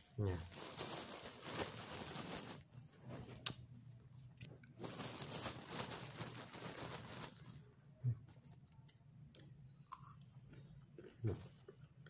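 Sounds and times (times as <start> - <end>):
plastic bag rustling: 0.0 - 3.4, 4.8 - 8.4
crunchy pastry chewing: 7.3 - 12.0.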